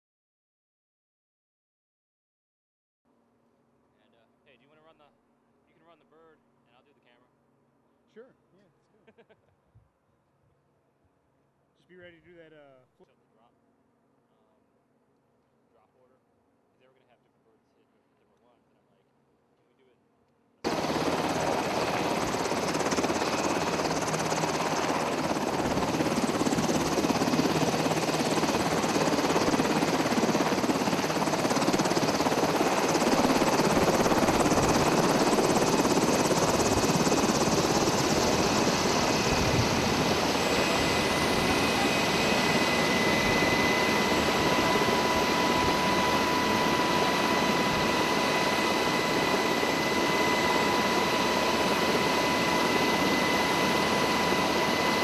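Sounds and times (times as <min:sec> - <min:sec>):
helicopter rotor and turbine noise: 0:20.6 - 0:55.0
steady high whine: 0:20.7 - 0:55.0.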